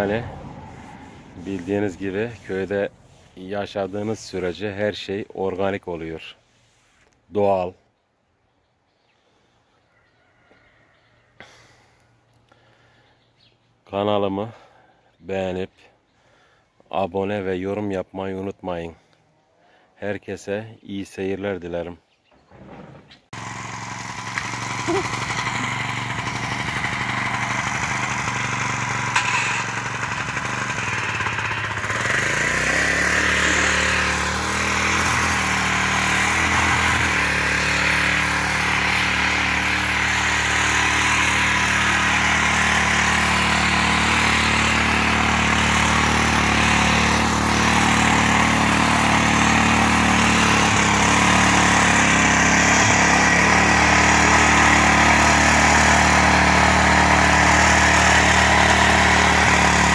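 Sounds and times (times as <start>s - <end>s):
tiller engine running: 0.0s - 4.5s, 23.3s - 59.9s.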